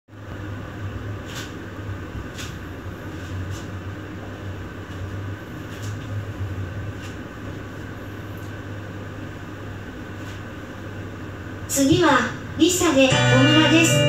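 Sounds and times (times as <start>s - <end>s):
air conditioning hum: 0.1s - 14.0s.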